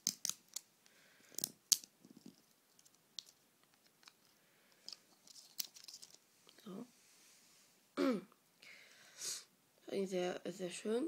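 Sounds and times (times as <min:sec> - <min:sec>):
plastic packaging clicking and crackling: 0:01.3 - 0:06.2.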